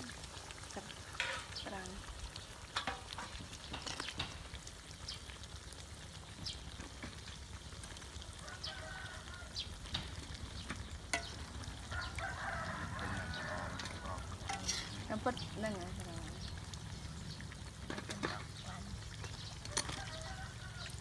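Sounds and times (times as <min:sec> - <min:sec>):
oil sizzling while frying: 0:00.0 - 0:21.0
rooster crowing: 0:08.4 - 0:09.6, 0:11.7 - 0:14.5, 0:19.7 - 0:21.0.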